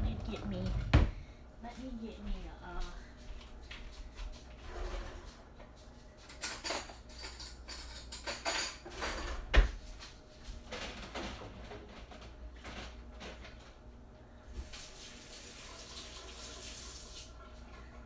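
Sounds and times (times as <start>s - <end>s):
dishes and cutlery clinking: 6.2s - 9.7s.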